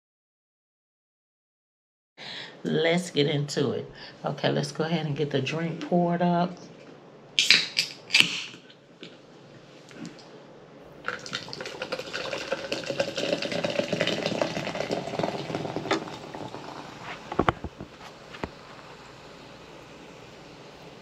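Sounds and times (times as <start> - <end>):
soda pouring and fizzing: 11.0 - 19.5.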